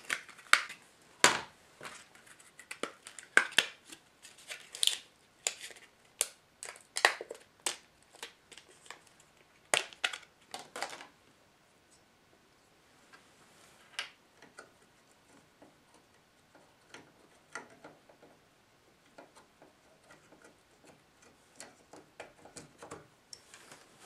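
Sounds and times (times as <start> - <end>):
plastic packaging crackling: 0.0 - 11.1.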